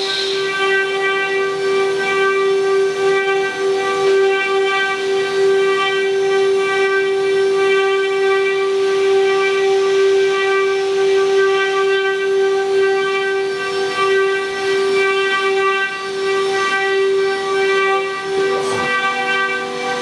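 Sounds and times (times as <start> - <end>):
router spindles whining: 0.0 - 20.0
bits cutting wood: 18.4 - 19.3.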